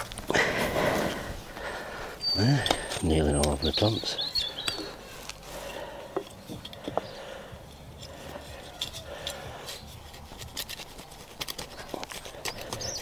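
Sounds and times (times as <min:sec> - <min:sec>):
hand scraping soil: 0:00.0 - 0:13.0.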